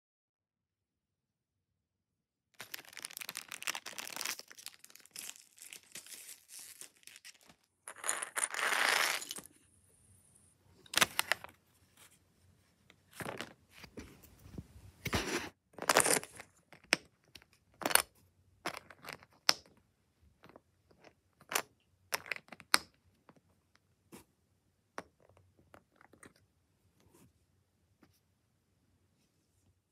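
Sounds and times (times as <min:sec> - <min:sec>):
plastic bag crinkling and tearing: 0:02.6 - 0:09.5.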